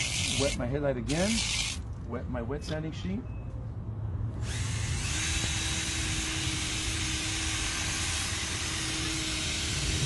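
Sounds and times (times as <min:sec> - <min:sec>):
drill motor hum: 0:00.0 - 0:01.8, 0:04.4 - 0:10.0.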